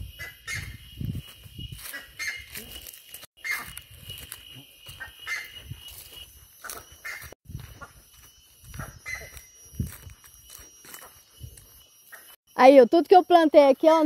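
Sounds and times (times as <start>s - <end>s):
footsteps on dry leaves: 1.0s - 11.8s.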